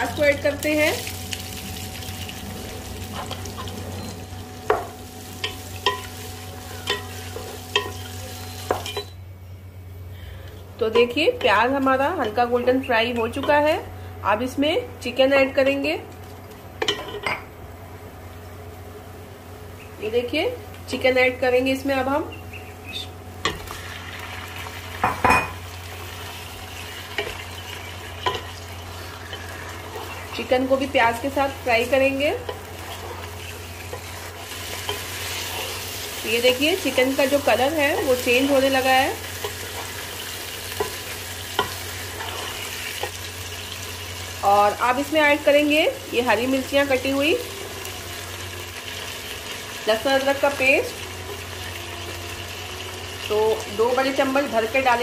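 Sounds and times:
onions sizzling in oil: 0:00.0 - 0:09.2, 0:20.8 - 0:55.0.

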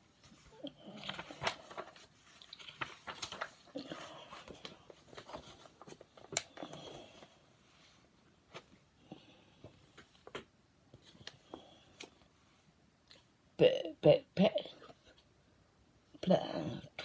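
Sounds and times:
paper rustling: 0:00.0 - 0:08.8
fingers tapping book pages: 0:00.2 - 0:07.0.

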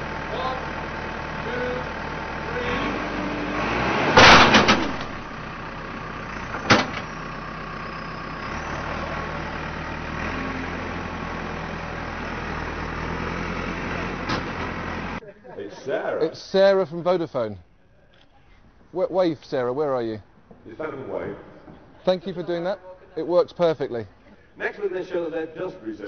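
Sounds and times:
diesel engine running: 0:00.0 - 0:15.2
loud clattering impact: 0:04.1 - 0:07.2.

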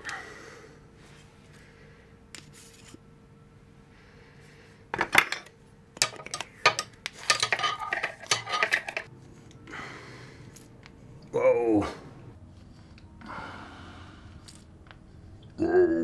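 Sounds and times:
grease gun parts clinking: 0:05.1 - 0:09.1.

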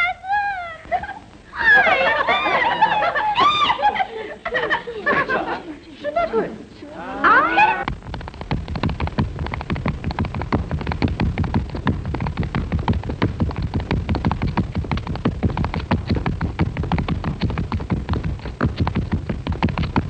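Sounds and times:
feet stamping and tapping: 0:07.8 - 0:20.0.

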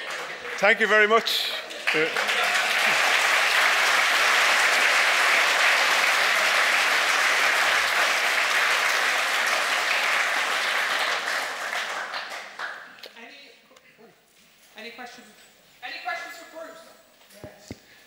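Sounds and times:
audience applauding: 0:00.0 - 0:13.0.

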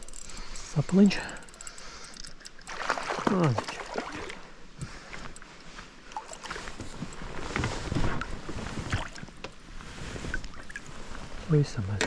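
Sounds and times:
water splashing against inflatable boat: 0:02.7 - 0:04.5.

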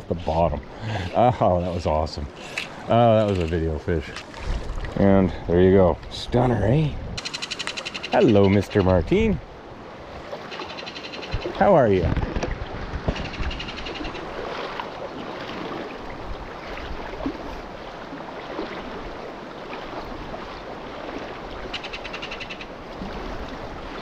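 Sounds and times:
stream rushing: 0:00.0 - 0:24.0
kingfisher rattling call: 0:07.2 - 0:09.0, 0:10.5 - 0:11.6, 0:13.1 - 0:14.3, 0:21.7 - 0:22.8.

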